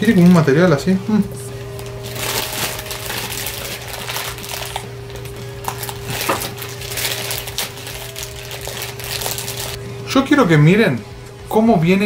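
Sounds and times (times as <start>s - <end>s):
soft background music: 0.0s - 12.0s
plastic wrapping crinkling: 1.5s - 9.8s.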